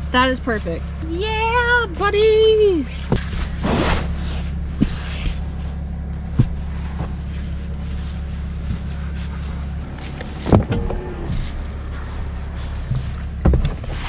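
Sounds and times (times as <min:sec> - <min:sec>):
pickup engine idling: 0:00.0 - 0:14.0.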